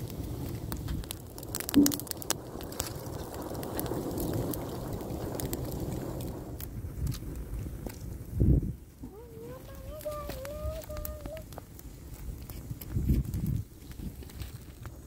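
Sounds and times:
brushwood fire crackling: 0:00.0 - 0:15.0.

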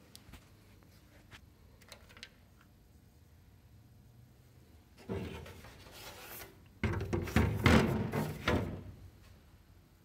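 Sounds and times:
plastic panels scraping: 0:05.0 - 0:08.9.

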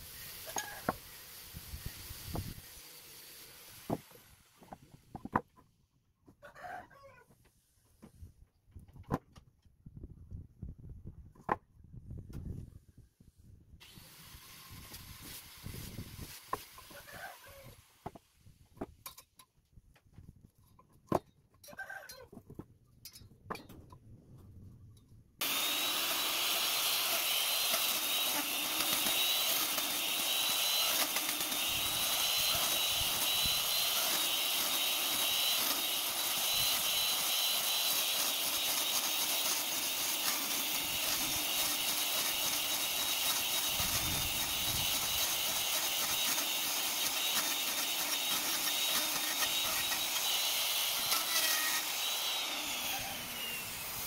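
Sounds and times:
electric router whining: 0:25.4 - 0:54.0.

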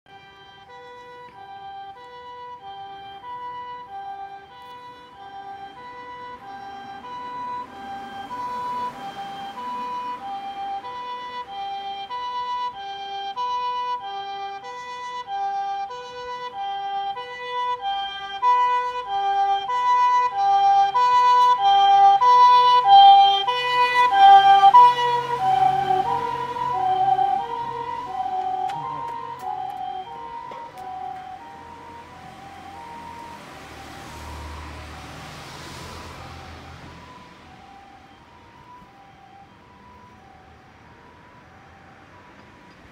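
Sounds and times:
vehicle running hum: 0:00.1 - 0:37.6
two-note ambulance siren: 0:00.1 - 0:42.9.

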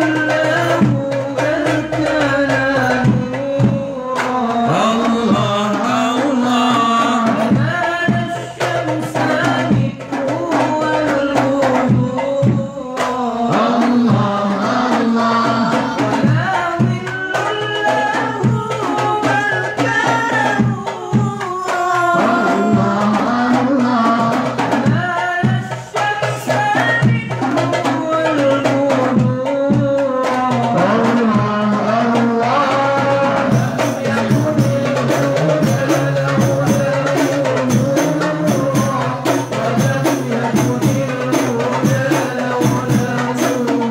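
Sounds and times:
frame drums: 0:00.0 - 0:43.9
voices singing together: 0:00.0 - 0:43.9.

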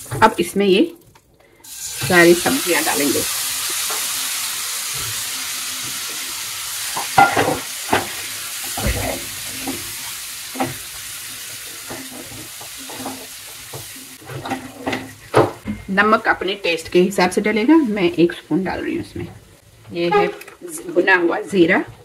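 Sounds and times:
vegetables sizzling in oil: 0:00.0 - 0:01.0, 0:01.6 - 0:21.9
spatula scraping pan: 0:11.6 - 0:15.4, 0:20.0 - 0:20.6.

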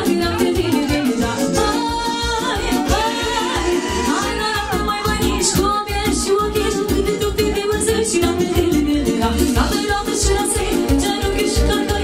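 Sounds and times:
live band playing folk dance music: 0:00.0 - 0:12.0.

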